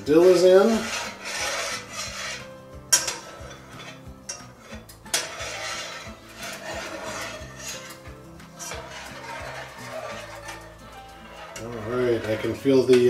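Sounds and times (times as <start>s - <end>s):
spoon scraping saucepan: 0.0s - 13.0s.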